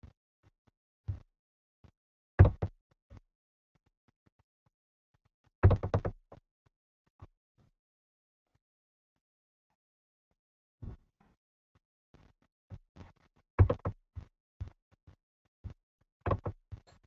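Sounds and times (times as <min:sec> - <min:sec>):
short sharp knocks: 0:13.6 - 0:14.0, 0:16.3 - 0:16.6.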